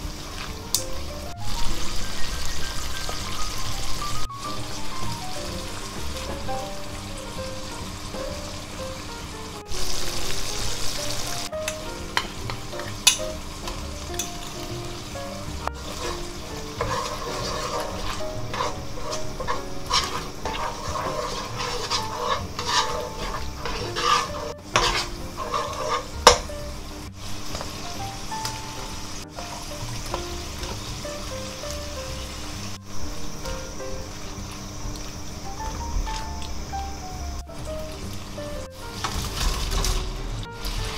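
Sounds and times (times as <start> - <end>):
curry paste sizzling in wok: 0.0 - 40.9
metal spoon scraping pan: 15.6 - 26.5.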